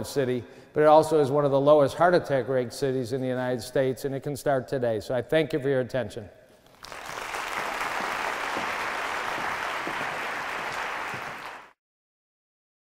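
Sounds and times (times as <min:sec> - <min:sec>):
audience applauding: 0:06.7 - 0:11.8.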